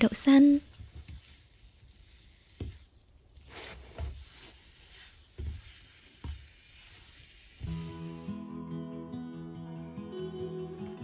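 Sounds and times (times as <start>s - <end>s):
soft knocks and scrapes: 0.7s - 8.1s.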